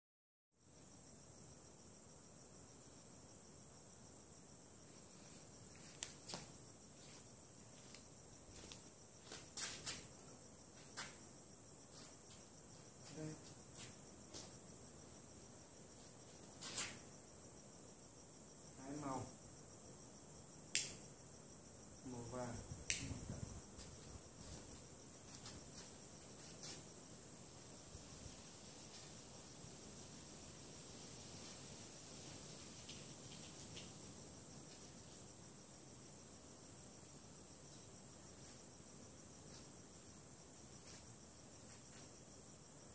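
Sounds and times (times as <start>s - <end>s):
crickets chirring: 0.6s - 42.9s
sharp click: 20.8s - 21.0s.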